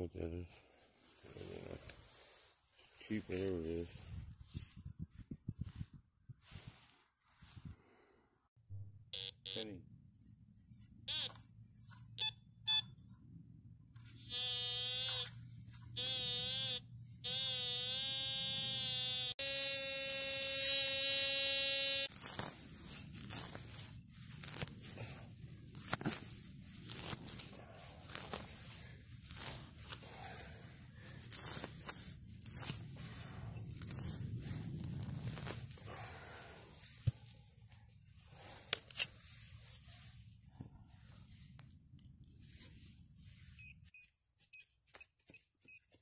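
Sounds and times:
metal detector tones: 0:09.1 - 0:09.7, 0:11.1 - 0:11.4, 0:12.1 - 0:13.0, 0:14.2 - 0:22.1
hand digger scraping soil: 0:22.0 - 0:35.8.

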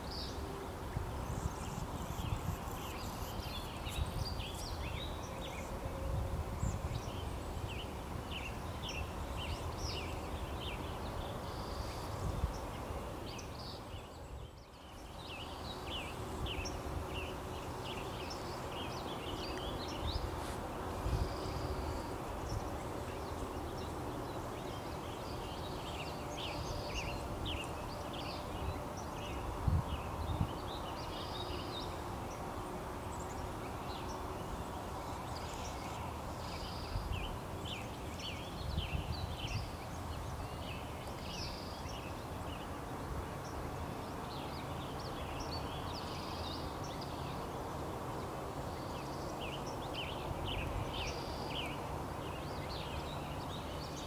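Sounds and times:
small birds chirping: 0:01.0 - 0:42.8.

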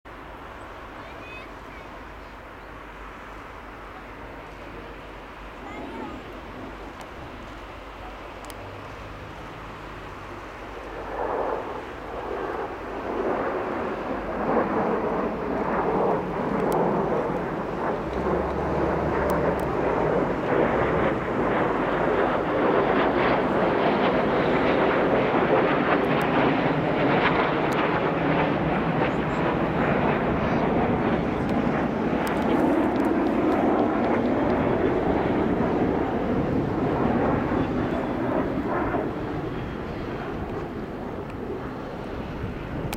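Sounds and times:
jet engines roaring overhead: 0:00.1 - 0:42.9.

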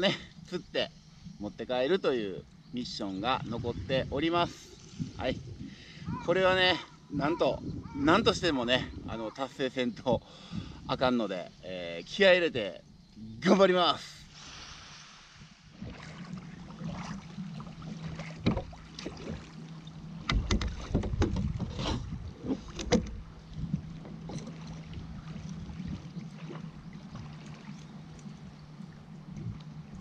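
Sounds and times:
water sloshing against hull: 0:00.0 - 0:13.1, 0:14.2 - 0:30.0
paddle splashes: 0:14.3 - 0:30.0.

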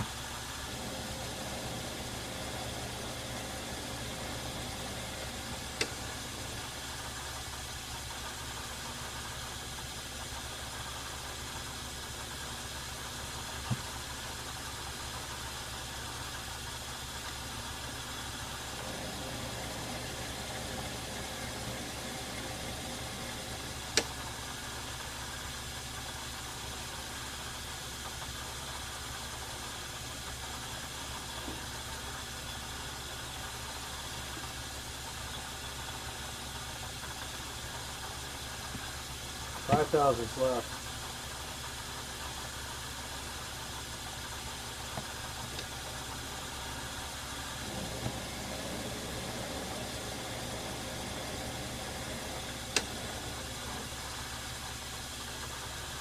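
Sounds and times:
metal lathe humming: 0:00.0 - 0:07.2, 0:18.4 - 0:24.4, 0:45.5 - 0:54.6.

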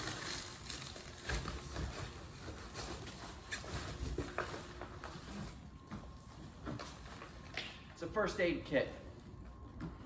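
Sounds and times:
knocks and scrapes of climbing: 0:01.1 - 0:07.5.

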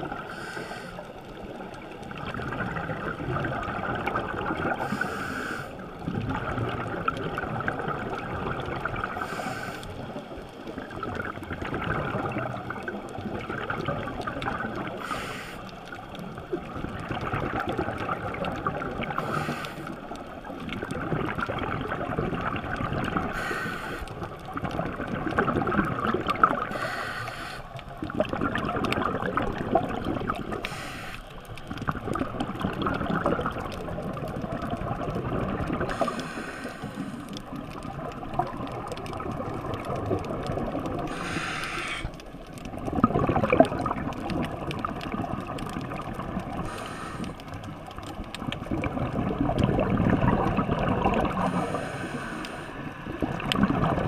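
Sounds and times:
gurgling exhaled bubbles: 0:00.0 - 0:54.0
regulator hiss: 0:00.2 - 0:01.1, 0:04.8 - 0:05.8, 0:09.2 - 0:10.1, 0:15.0 - 0:15.7, 0:19.2 - 0:20.0, 0:23.3 - 0:24.2, 0:26.7 - 0:27.8, 0:30.6 - 0:31.3, 0:35.9 - 0:37.3, 0:41.1 - 0:42.1, 0:46.6 - 0:47.4, 0:51.5 - 0:52.8.

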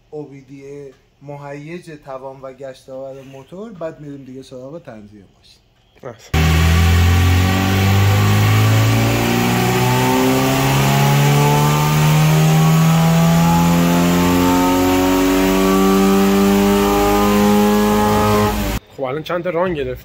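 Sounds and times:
car engine revving at full throttle: 0:06.4 - 0:18.8.

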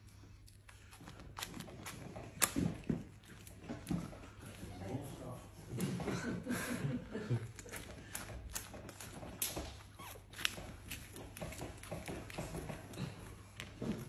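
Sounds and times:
wax mask peeling off skin: 0:07.6 - 0:12.4.

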